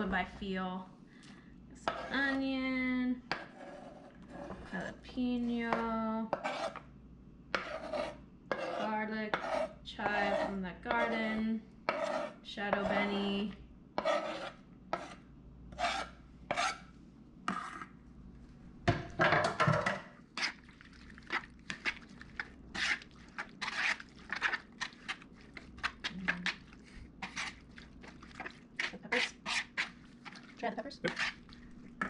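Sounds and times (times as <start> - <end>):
knife scraping on wooden board: 1.8 - 2.3, 3.3 - 4.8, 6.3 - 6.8, 7.5 - 11.3, 11.9 - 13.0, 14.0 - 16.9, 17.5 - 17.9, 22.7 - 26.6, 27.2 - 27.6, 28.3 - 30.4, 31.0 - 31.5.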